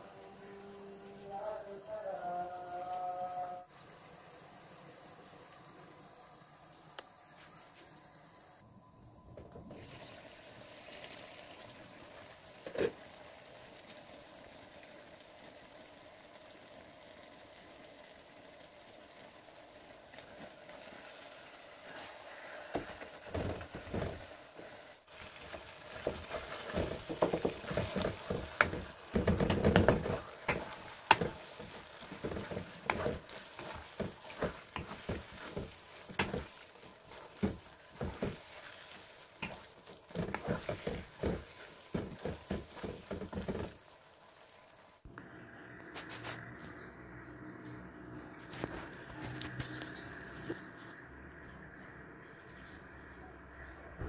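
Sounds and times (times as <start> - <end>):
food sizzling: 0.0 - 8.7, 9.7 - 51.0
spatula stirring and knocking in wok: 20.1 - 44.8.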